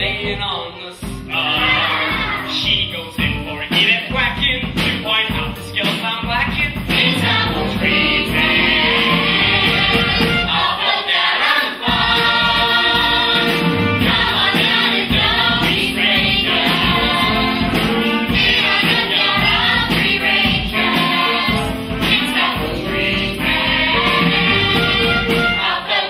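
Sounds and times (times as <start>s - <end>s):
instrumental accompaniment: 0.0s - 26.0s
children singing in chorus: 23.8s - 26.0s.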